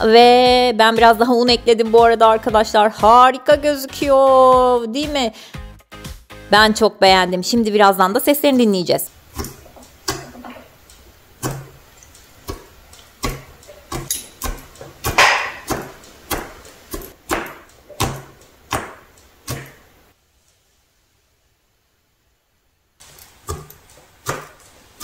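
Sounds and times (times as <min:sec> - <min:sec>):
fingers poking sticky slime: 0:12.4 - 0:19.8.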